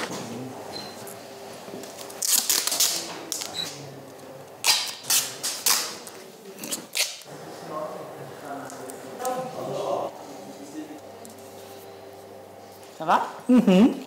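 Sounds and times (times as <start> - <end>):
duct tape ripping off roll: 2.0 - 3.5, 4.6 - 6.0, 6.6 - 7.3.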